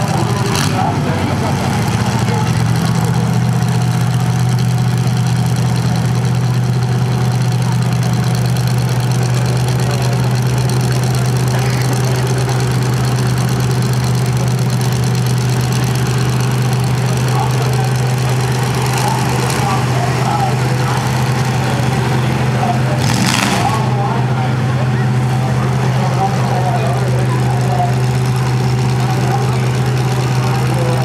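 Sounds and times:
engines idling: 0.0 - 31.0.

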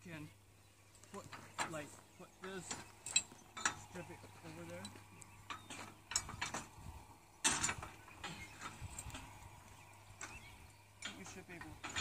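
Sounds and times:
metal clinks and knocks: 2.4 - 6.8, 7.4 - 9.4, 10.2 - 12.0.

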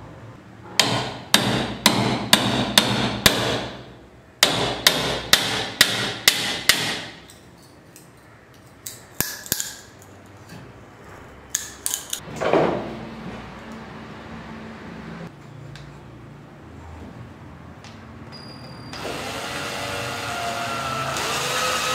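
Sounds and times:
hammer striking wood chisel: 0.8 - 7.3.

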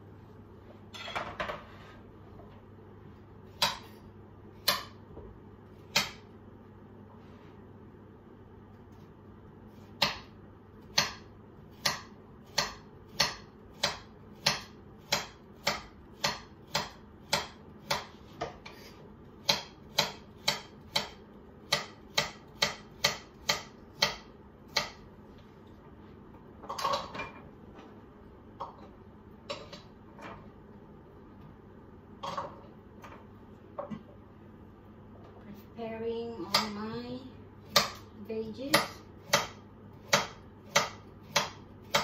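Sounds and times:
knife chopping on wooden board: 9.9 - 10.3, 10.9 - 25.0, 37.7 - 38.1, 38.7 - 42.0.

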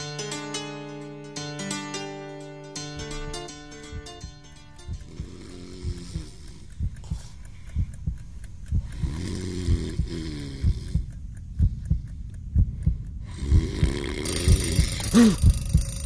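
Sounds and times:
low wavering bass tones: 3.0 - 7.1, 14.3 - 16.0
deep kick drum: 3.8 - 16.0.

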